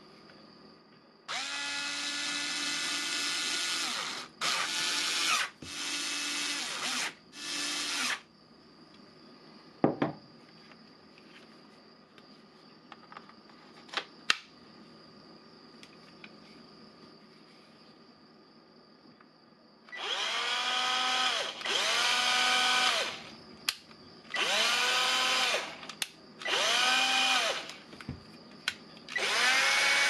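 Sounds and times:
cordless drill running: 1.3 - 8.2, 19.9 - 23.3, 24.3 - 25.8, 26.4 - 27.8, 29.1 - 30.0.

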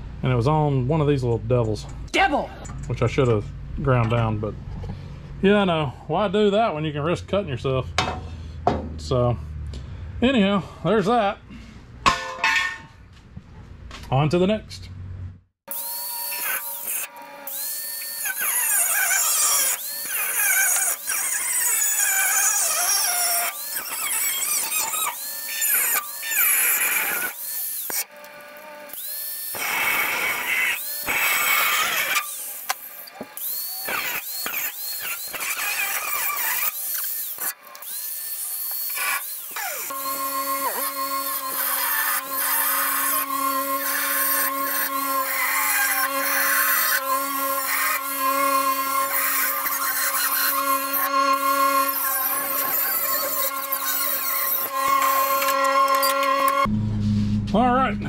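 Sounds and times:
power cutting tool whine: 15.7 - 56.8.

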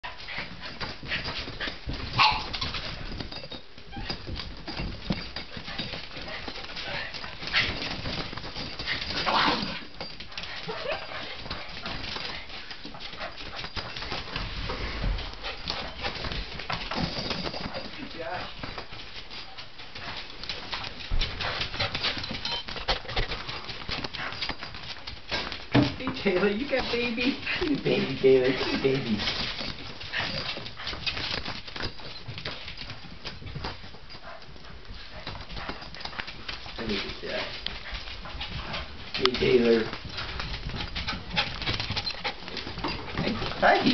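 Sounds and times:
dogs whining and yelping: 0.4 - 7.8, 8.6 - 11.6, 40.2 - 43.4.

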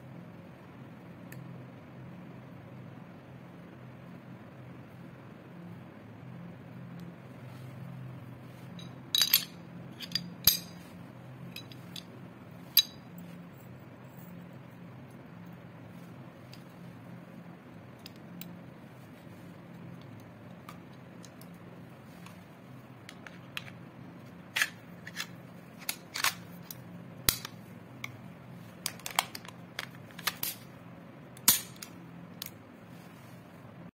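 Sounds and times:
faint steady hum: 0.0 - 33.9.

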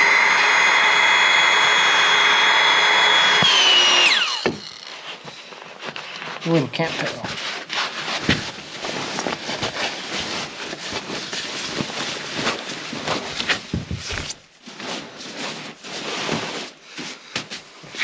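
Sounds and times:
nylon fabric rustling: 4.9 - 18.0.

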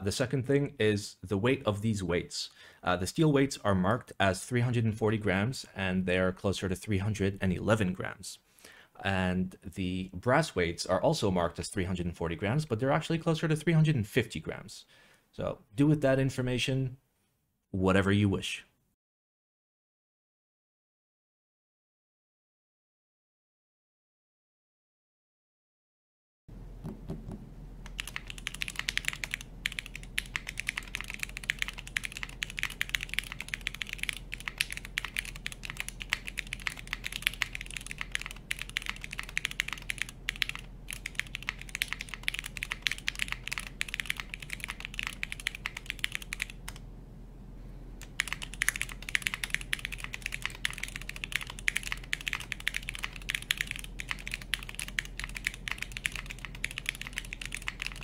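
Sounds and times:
air conditioning hum: 0.0 - 17.2, 26.5 - 58.0
fast typing on mechanical keyboard: 27.9 - 46.8, 48.1 - 58.0.

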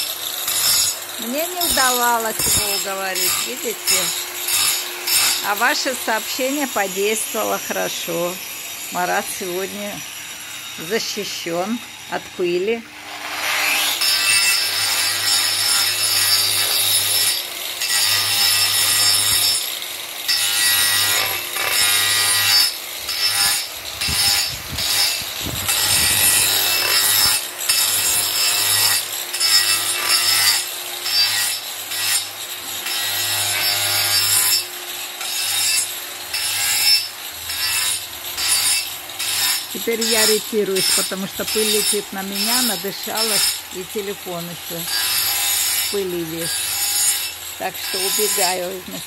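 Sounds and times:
angle grinder motor whine: 0.0 - 19.6
grinding disc rasping on wood: 0.0 - 49.0.

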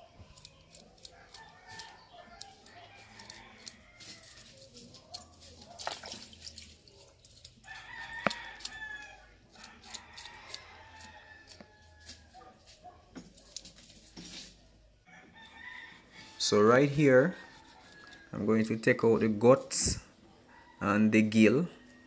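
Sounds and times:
knife scraping fish scales: 0.2 - 12.8
rooster crowing: 1.1 - 4.6, 7.6 - 12.5, 15.0 - 18.4, 20.4 - 21.1.

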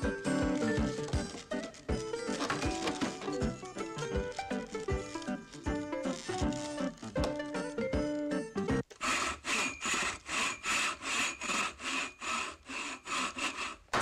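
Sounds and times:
fast rasping scraping: 0.2 - 7.2, 8.9 - 14.0.

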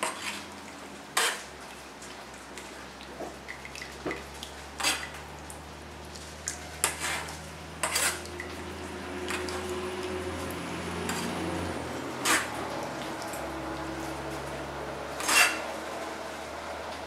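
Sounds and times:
ladle scraping wire strainer: 0.0 - 0.6, 1.2 - 1.5, 4.8 - 5.2, 6.5 - 10.2, 10.9 - 14.5, 15.1 - 16.1.

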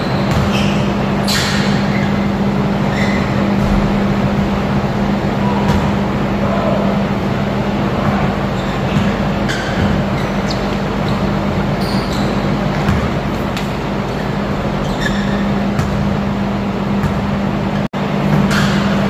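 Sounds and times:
sneakers squeaking on court: 0.0 - 4.3, 7.8 - 17.8
ventilation fan humming: 0.0 - 19.0
basketball bouncing on hardwood: 0.3 - 0.5, 5.7 - 6.0, 12.7 - 13.2, 15.3 - 16.1.

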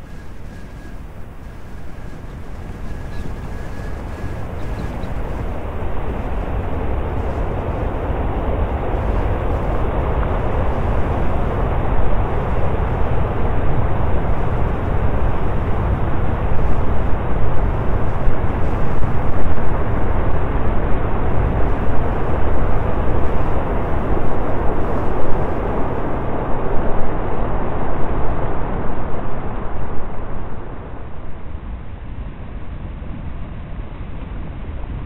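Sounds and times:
deep rumble: 0.0 - 31.3
sea: 0.0 - 35.0
wind: 0.0 - 35.0.

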